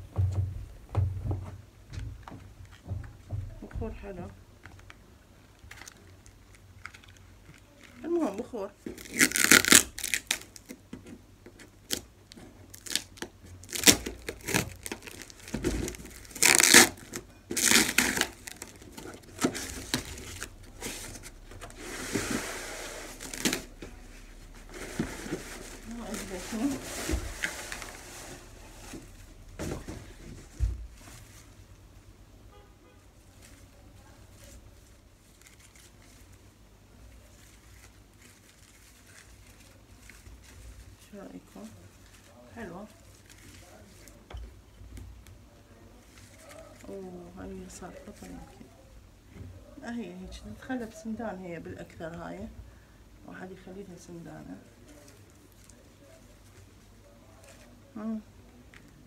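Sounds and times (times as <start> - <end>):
low steady hum: 0.0 - 59.0
plant rustling against cardboard: 5.7 - 10.9, 11.5 - 31.8, 33.1 - 44.3, 45.4 - 48.8, 53.6 - 58.2
cardboard box scraping and crinkling: 13.6 - 31.3.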